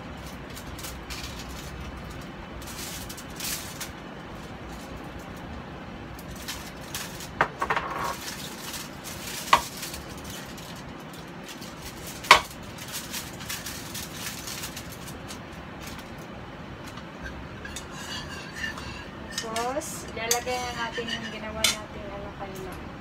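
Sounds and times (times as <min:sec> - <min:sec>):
low background noise: 0:00.0 - 0:23.0
kitchen containers and utensils clinking: 0:06.4 - 0:10.5, 0:16.9 - 0:22.0.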